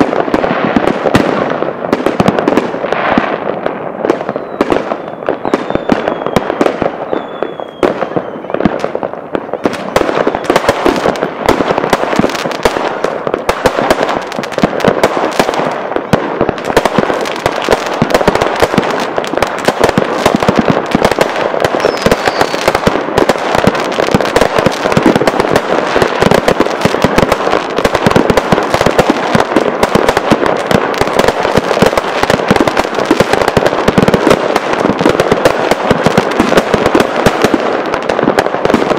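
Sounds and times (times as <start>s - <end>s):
fireworks bangs and crackle: 0.0s - 38.9s
falling firework whistles: 4.0s - 8.8s, 10.2s - 10.6s, 21.7s - 22.8s.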